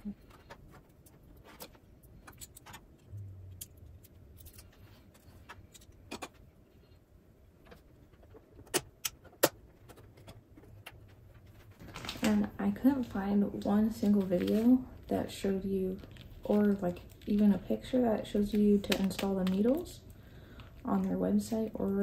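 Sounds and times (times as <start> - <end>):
plastic parts clicking and tapping: 0.1 - 6.4, 7.6 - 12.2.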